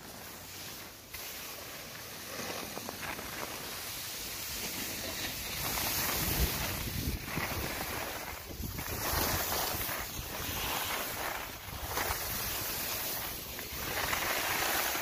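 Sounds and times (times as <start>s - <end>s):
skis hissing over snow: 0.0s - 15.0s
wind rushing over microphone: 5.6s - 15.0s.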